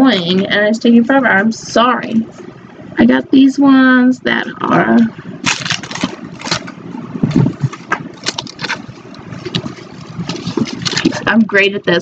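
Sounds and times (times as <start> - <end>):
paper and tape rustling: 5.4 - 11.3.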